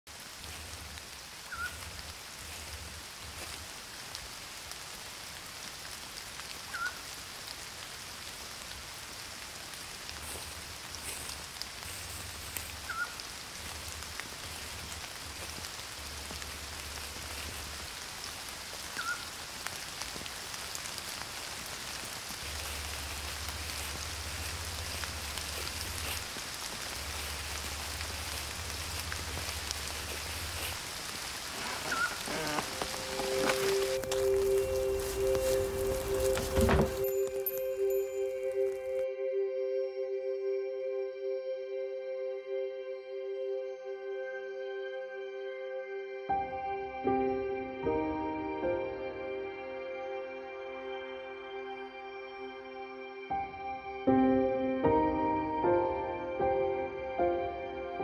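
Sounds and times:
steady rain hiss: 0:00.1 - 0:39.1.

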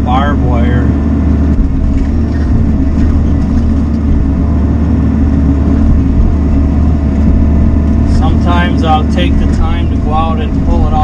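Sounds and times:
diesel engine running under load: 0:00.0 - 0:11.0
hydraulics working: 0:00.0 - 0:11.0.

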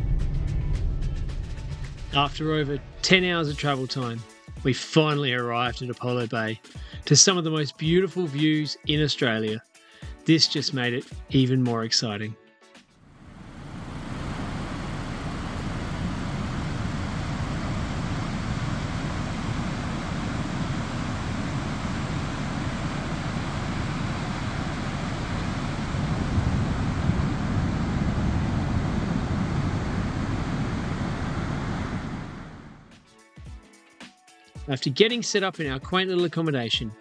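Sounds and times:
ocean surf breaking: 0:13.9 - 0:32.8
wind rumble on microphone: 0:23.6 - 0:32.7.

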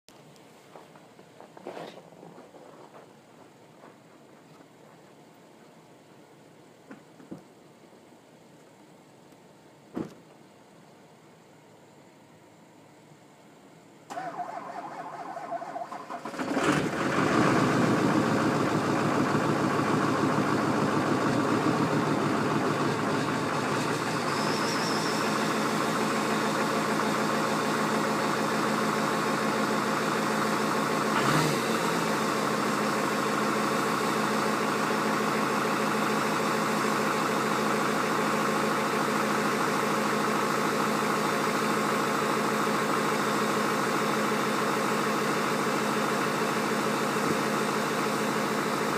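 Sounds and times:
diesel engine cranking and idling: 0:14.0 - 0:48.9.

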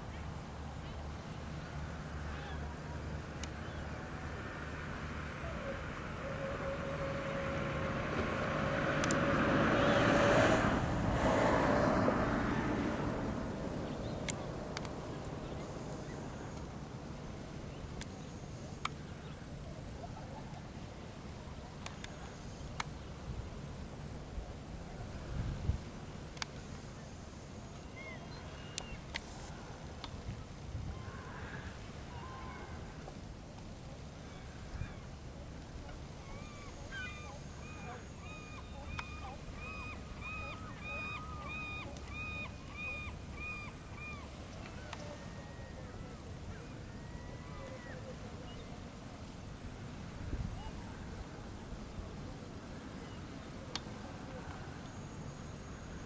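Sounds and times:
wind and water rumble: 0:00.0 - 0:54.8
distant gull calls: 0:05.4 - 0:08.0, 0:36.2 - 0:48.6.

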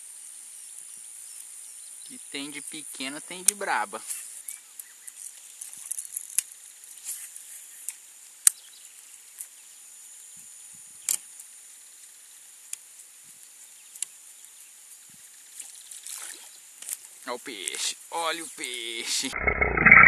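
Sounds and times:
high-pitched insect buzzing: 0:18.7 - 0:20.0.

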